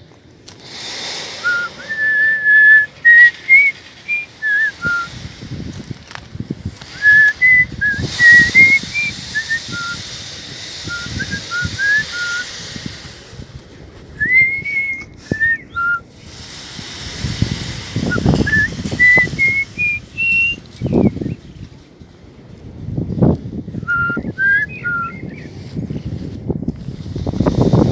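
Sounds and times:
low rumbling noise: 0.0s - 27.9s
person whistling: 1.4s - 5.2s, 7.0s - 10.1s, 10.8s - 12.6s, 14.2s - 16.0s, 18.0s - 21.4s, 23.8s - 25.4s.

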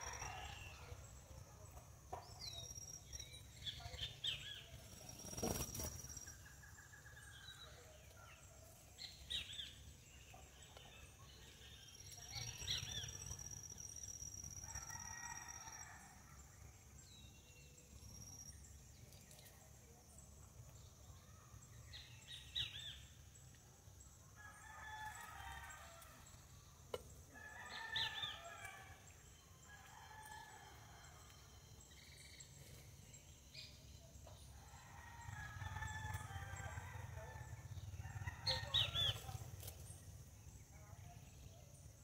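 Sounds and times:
faint roosters crowing: 0.0s - 1.5s, 14.5s - 16.6s, 24.3s - 26.5s, 27.3s - 31.8s, 34.4s - 39.8s.

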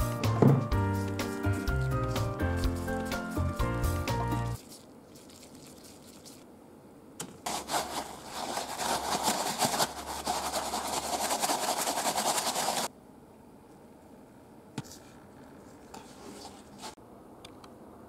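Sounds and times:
breadcrumbs shaken in plastic container: 1.0s - 6.4s, 7.5s - 12.9s.

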